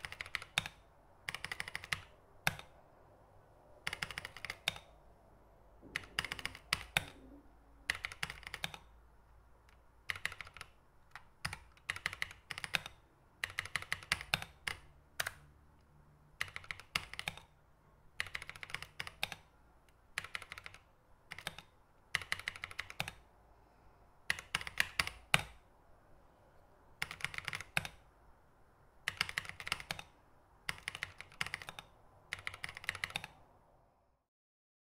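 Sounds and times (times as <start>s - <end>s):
keypad keys clicking: 0.0s - 2.8s, 3.8s - 5.0s, 5.9s - 7.3s, 7.9s - 8.9s, 9.6s - 15.4s, 16.4s - 23.3s, 24.2s - 25.6s, 27.0s - 28.1s, 29.0s - 33.4s.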